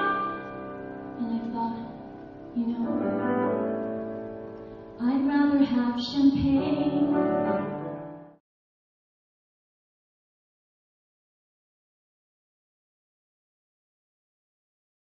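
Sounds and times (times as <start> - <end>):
grand piano accompaniment: 0.0 - 8.4.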